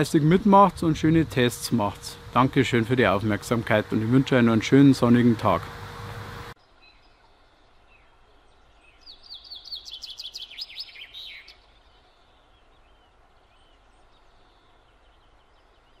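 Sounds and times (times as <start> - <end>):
outdoor hiss: 0.0 - 7.2
songbird chirping: 6.5 - 16.0.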